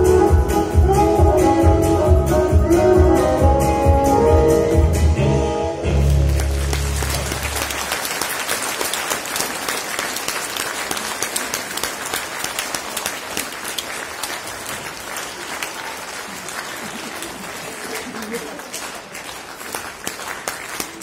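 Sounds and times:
audience applauding: 6.0s - 21.0s.

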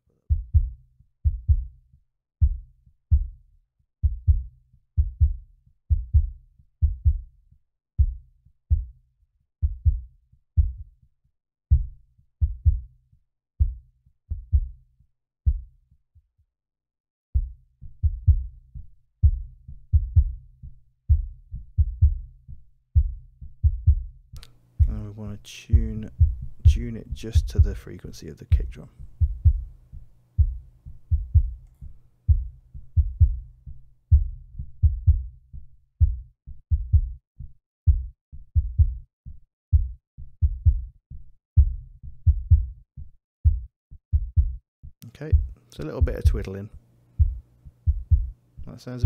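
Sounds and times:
kick drum thumps: 0.3s - 1.7s, 2.4s - 3.4s, 4.0s - 7.2s, 8.0s - 9.0s, 9.6s - 10.9s, 11.7s - 12.8s, 13.6s - 14.8s, 17.4s - 18.5s, 19.2s - 20.4s, 21.1s - 22.3s, 23.0s - 24.1s, 24.8s - 25.1s, 25.7s - 27.8s, 28.5s - 29.8s, 30.4s - 31.6s, 32.3s - 33.5s, 34.1s - 35.4s, 36.0s - 37.2s, 37.9s - 39.0s, 39.7s - 40.9s, 41.6s - 42.8s, 43.4s - 44.6s, 45.3s - 46.5s, 47.2s - 48.4s.

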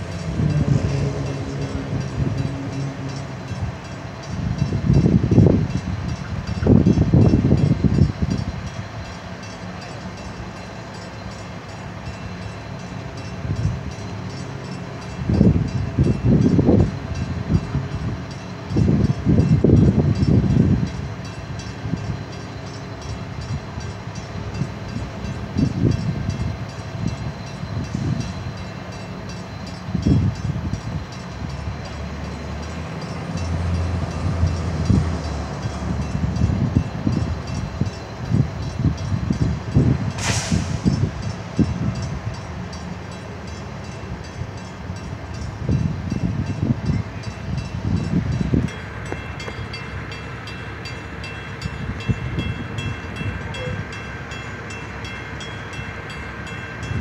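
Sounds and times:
wind buffeting microphone: 0.0s - 9.0s, 15.1s - 22.3s, 23.1s - 28.6s, 29.5s - 31.9s, 33.4s - 42.8s, 44.0s - 50.2s, 50.8s - 54.0s
drawbridge machinery humming: 0.0s - 40.1s.

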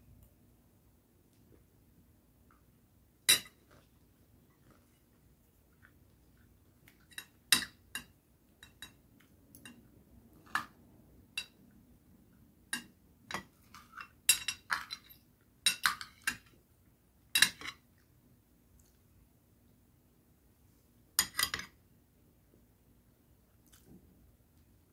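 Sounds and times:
cutlery clinking on a plate: 3.3s - 3.8s, 7.0s - 9.0s, 12.7s - 16.5s, 17.4s - 17.8s, 21.2s - 21.8s.

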